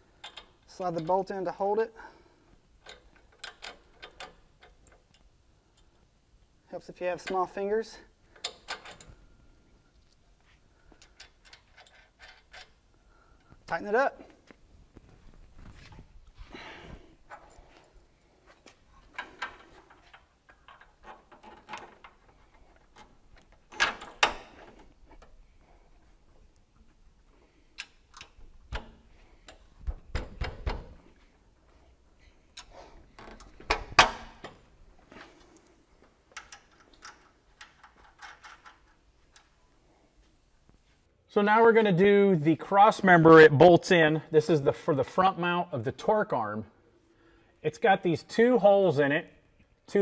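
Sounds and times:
tools and hardware clinking: 2.8 - 5.9, 11.0 - 12.8, 19.0 - 25.4, 32.6 - 39.7.

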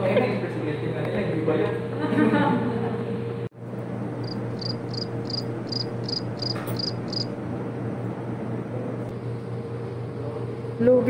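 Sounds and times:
low room hum: 0.0 - 11.0
cricket chirping: 4.2 - 7.3.

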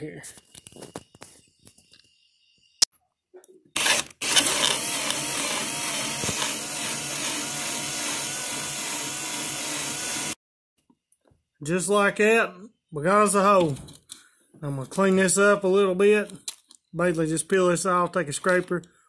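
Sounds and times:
cordless drill boring through plastic: 3.8 - 10.4.

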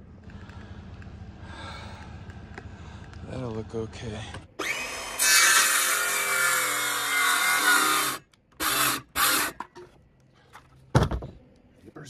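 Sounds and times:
power drill driving screw into wood: 4.6 - 9.6.

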